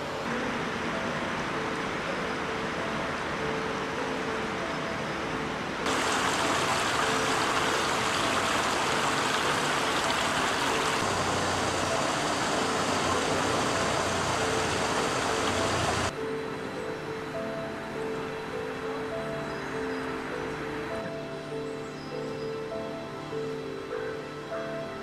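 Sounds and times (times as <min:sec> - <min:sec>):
brook running over stones: 0:05.8 - 0:16.1.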